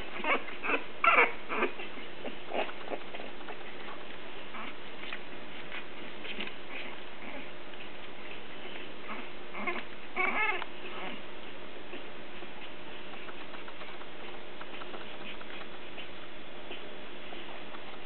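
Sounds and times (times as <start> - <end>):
puppies whimpering: 0.0 - 5.6, 6.3 - 11.3.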